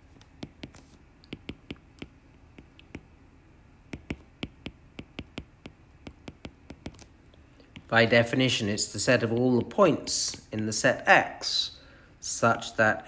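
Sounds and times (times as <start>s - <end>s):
stylus tapping on glass screen: 0.4s - 3.1s, 3.9s - 7.1s, 7.7s - 7.9s.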